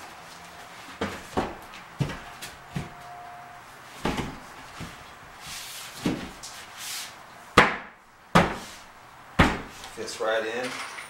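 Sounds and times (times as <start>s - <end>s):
board knocking and bumping: 1.0s - 3.0s, 4.0s - 5.0s, 6.0s - 6.5s, 7.6s - 8.7s, 9.4s - 9.9s.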